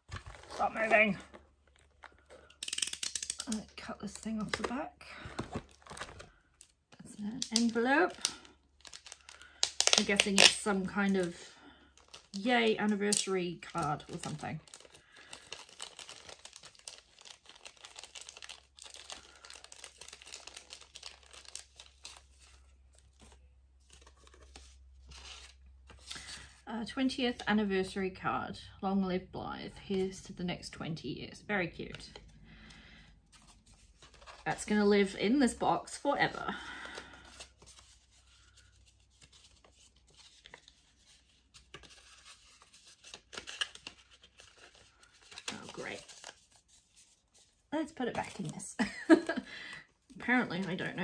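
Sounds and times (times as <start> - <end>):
paper envelope crinkling and tearing: 5.4 - 26.6, 33.3 - 34.6, 36.6 - 49.5.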